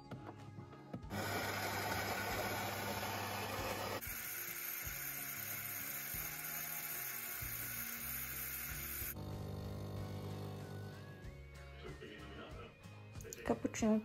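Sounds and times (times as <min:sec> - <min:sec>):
milk frother hissing: 0:01.1 - 0:10.8
espresso machine running: 0:01.1 - 0:11.0.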